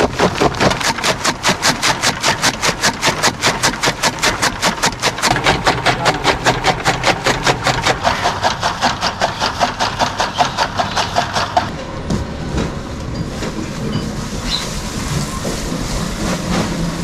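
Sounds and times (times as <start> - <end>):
chaff cutter chopping fodder: 0.0 - 11.7.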